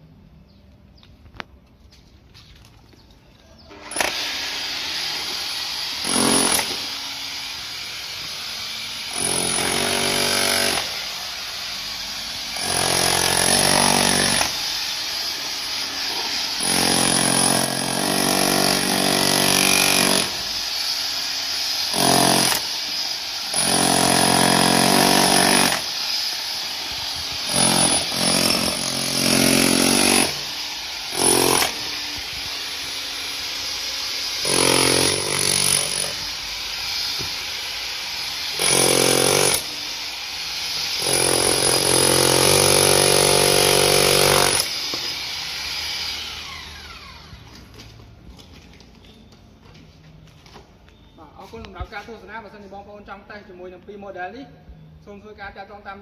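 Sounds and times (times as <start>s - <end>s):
rotary hammer chiselling concrete: 5.3s - 7.0s, 9.1s - 11.0s, 12.6s - 20.8s, 21.4s - 32.9s, 34.2s - 36.4s, 38.4s - 39.8s, 40.8s - 45.6s.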